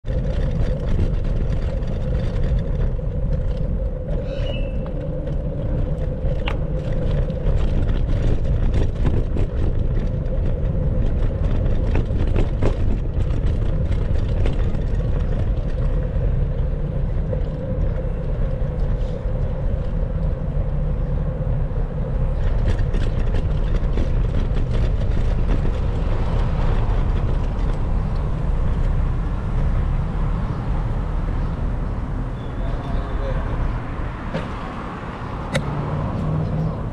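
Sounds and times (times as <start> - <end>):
bicycle clicks and rattles: 0.0 - 20.8, 22.1 - 29.0
road rumble: 0.0 - 36.9
wind rushing over microphone: 0.0 - 36.9.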